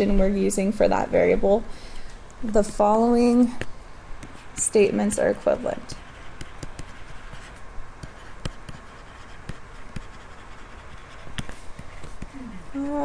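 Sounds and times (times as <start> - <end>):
pen scratching on tablet screen: 4.2 - 13.0.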